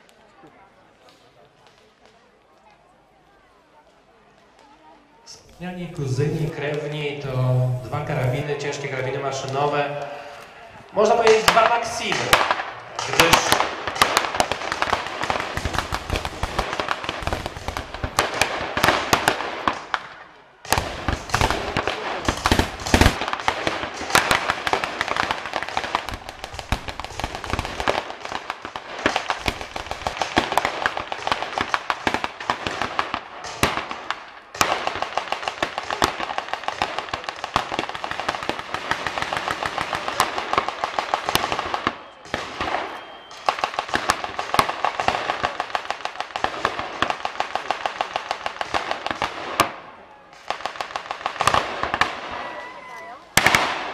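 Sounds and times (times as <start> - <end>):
machine guns firing bursts: 11.0 - 19.9, 20.6 - 49.6.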